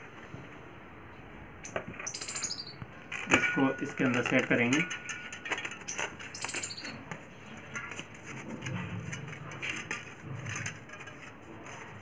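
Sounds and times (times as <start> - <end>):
short high squeaks: 1.7 - 2.8, 5.9 - 7.0.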